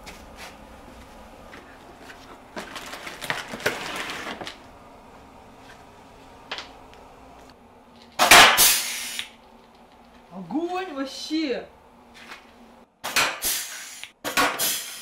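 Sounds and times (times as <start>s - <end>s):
plastic packaging crinkling: 2.1s - 4.7s
rivet gun firing hiss: 8.2s - 9.3s, 13.0s - 15.0s.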